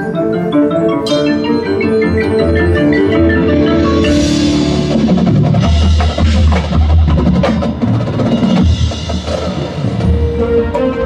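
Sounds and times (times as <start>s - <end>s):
marching band playing: 0.0s - 11.0s
snare and bass drums: 3.9s - 11.0s.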